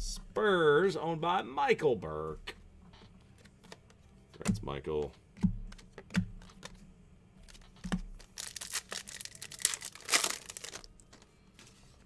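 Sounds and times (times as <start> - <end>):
plastic wrapper crinkling and tearing: 7.5 - 11.2.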